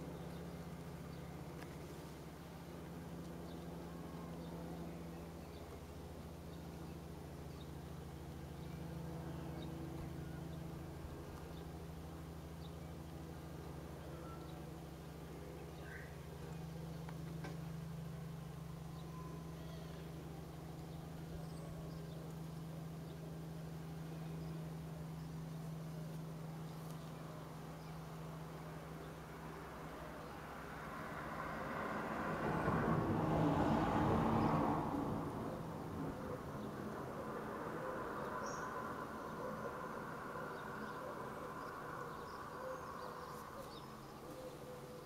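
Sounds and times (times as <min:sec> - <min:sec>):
faint low outdoor rumble: 0:00.0 - 0:45.0
low mechanical hum: 0:00.0 - 0:45.0
faint high chirps: 0:18.9 - 0:20.1.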